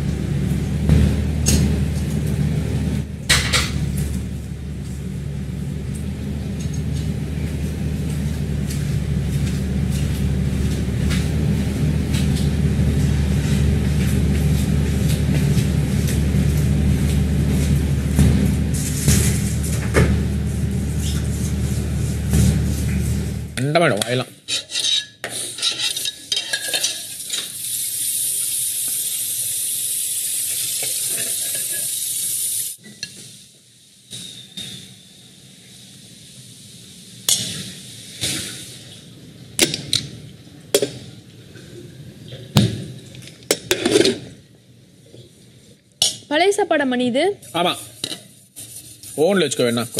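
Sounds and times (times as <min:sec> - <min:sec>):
loud low drone: 0:00.0 - 0:23.6
pots and utensils clattering: 0:01.0 - 0:02.3, 0:03.3 - 0:04.3, 0:24.5 - 0:27.6, 0:30.8 - 0:32.0, 0:37.3 - 0:37.7, 0:42.4 - 0:44.4
food sizzling in a pan: 0:24.8 - 0:39.1.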